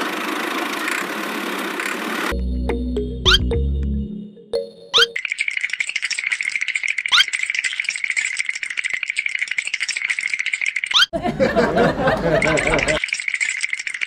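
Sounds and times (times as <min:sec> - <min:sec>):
fast rattling sound effect: 0:05.0 - 0:11.1, 0:12.4 - 0:14.0.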